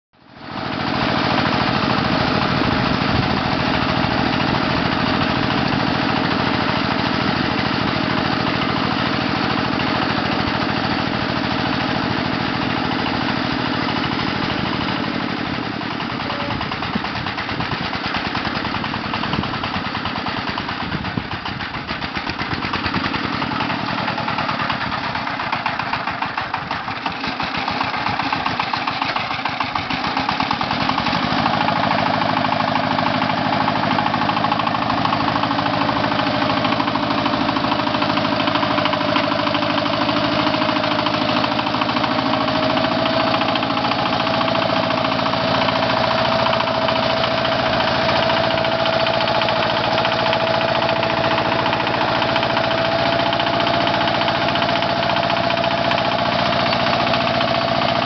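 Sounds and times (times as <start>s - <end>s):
diesel tractor engine chugging: 0.2s - 58.0s.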